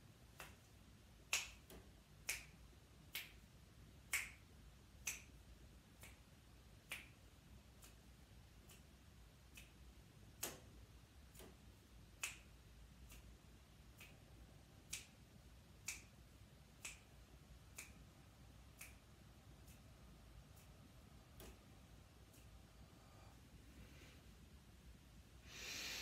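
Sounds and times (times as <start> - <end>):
faint sharp clicks: 6.0 - 16.2, 16.8 - 23.4.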